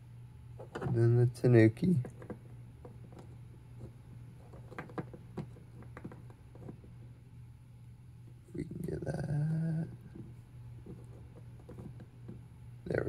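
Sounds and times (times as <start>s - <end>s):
steady low hum: 0.0s - 13.0s
skull clicking on countertop: 2.0s - 6.8s.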